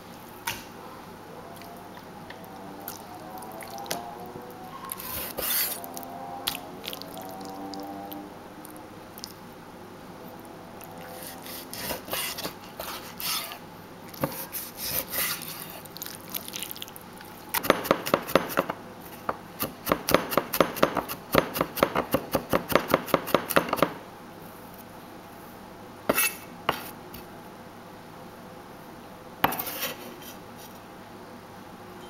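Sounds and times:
rapid cleaver chopping: 0:19.6 - 0:24.0
cleaver scraping and knocking: 0:29.5 - 0:30.4.

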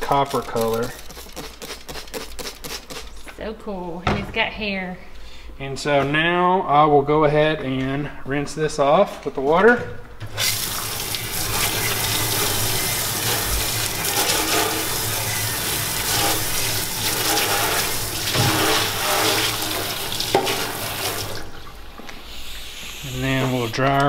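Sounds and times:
water spraying into steel sink: 0:10.3 - 0:24.0.

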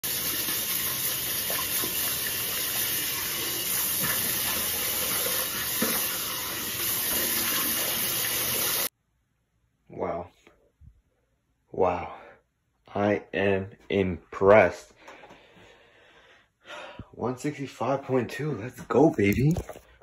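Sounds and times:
tap running into sink: 0:03.8 - 0:07.7.

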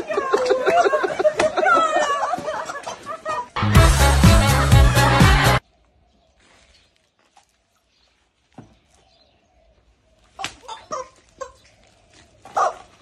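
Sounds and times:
rubber chickens squawking: 0:10.3 - 0:13.0.

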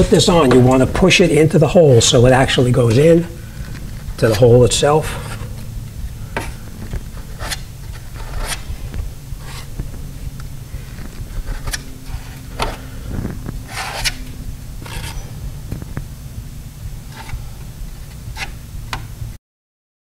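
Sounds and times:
low steady hum: 0:00.0 - 0:19.4
spreader scraping filler on metal: 0:13.7 - 0:15.4.

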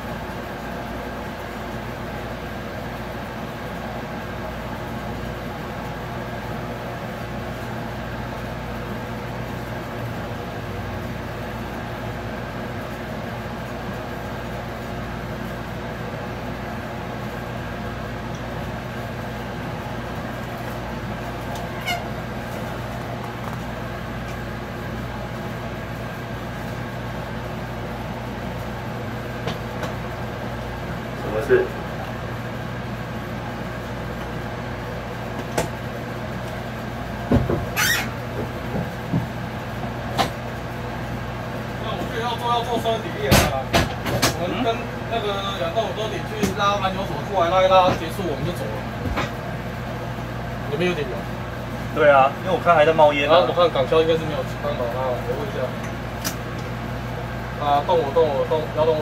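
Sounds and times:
faint squeak: 0:21.7 - 0:22.1, 0:37.8 - 0:38.1.

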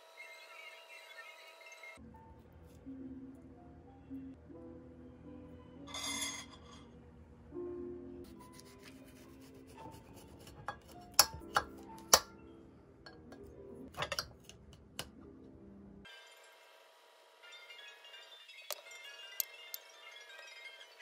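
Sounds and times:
knife slicing melon: 0:08.5 - 0:12.2.

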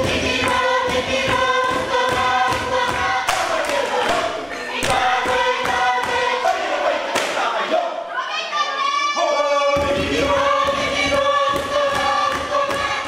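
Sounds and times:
fast percussive beat: 0:00.0 - 0:03.6, 0:09.8 - 0:13.0
group of voices singing in harmony: 0:00.0 - 0:13.0.

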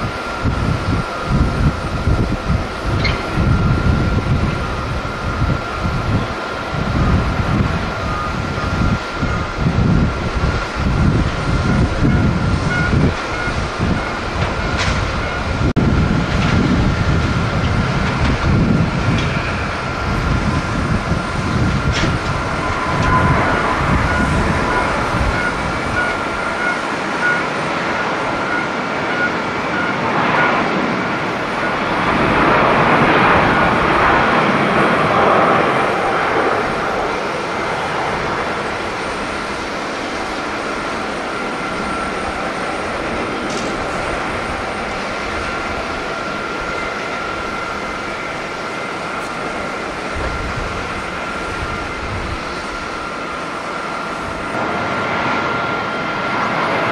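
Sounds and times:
jet engine roar: 0:00.0 - 0:56.9
steady high whine: 0:00.0 - 0:56.9.

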